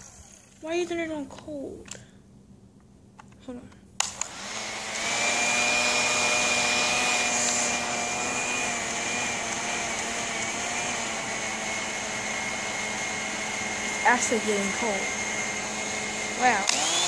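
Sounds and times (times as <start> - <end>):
hair dryer running: 0.0 - 0.6, 4.0 - 17.0.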